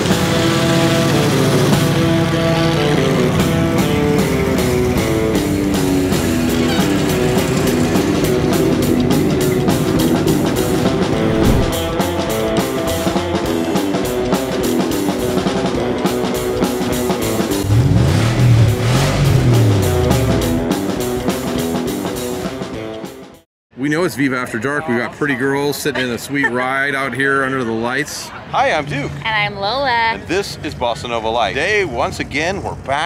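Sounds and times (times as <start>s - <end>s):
rock music with guitar and drums: 0.0s - 23.4s
low swelling sound: 11.2s - 12.0s.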